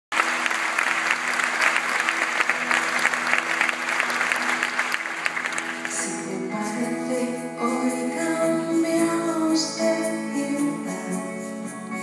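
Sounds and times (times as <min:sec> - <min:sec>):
audience applauding: 0:00.1 - 0:06.3.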